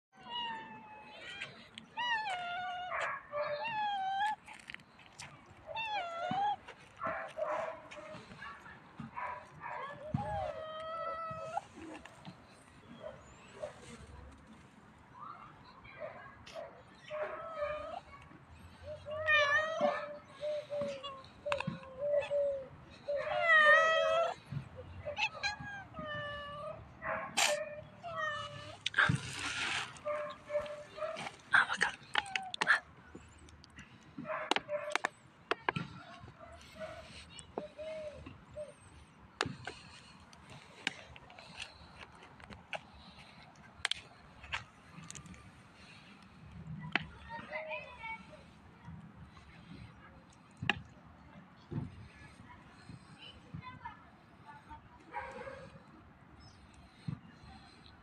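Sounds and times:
cats meowing: 19.0s - 26.8s
rustle: 28.4s - 32.0s.

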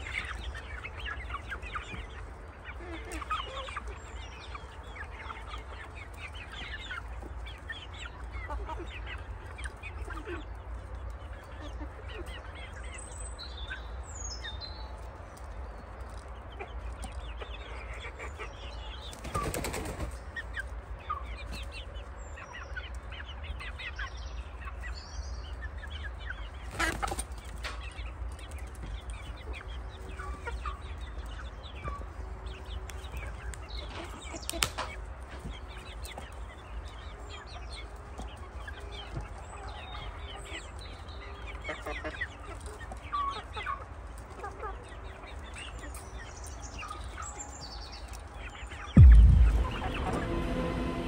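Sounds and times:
chickens chirping and clucking: 0.0s - 51.0s
wings flapping: 19.1s - 20.2s.

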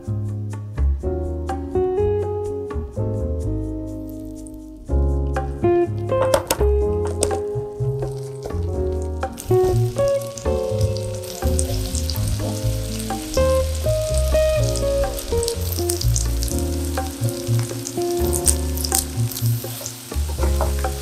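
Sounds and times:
background music: 0.0s - 21.0s
food sizzling in a pot: 7.0s - 21.0s.

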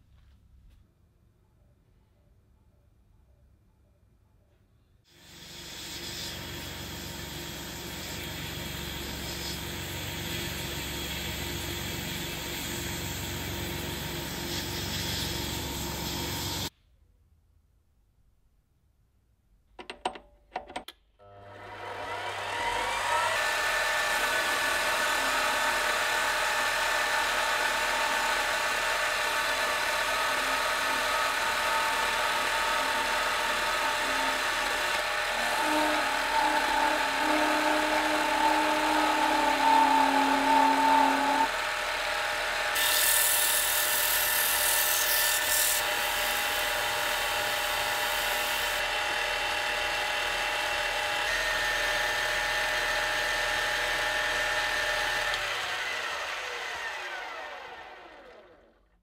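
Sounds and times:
abrasive pad polishing: 5.2s - 16.7s, 30.4s - 41.8s, 42.7s - 48.8s
tool cutting steel singing tone: 21.3s - 49.2s
metal lathe whining: 21.5s - 58.6s.

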